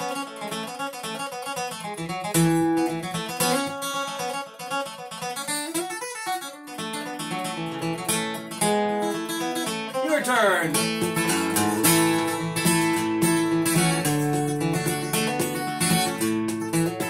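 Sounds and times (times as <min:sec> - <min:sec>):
acoustic guitar picking and strumming: 0:00.0 - 0:17.0.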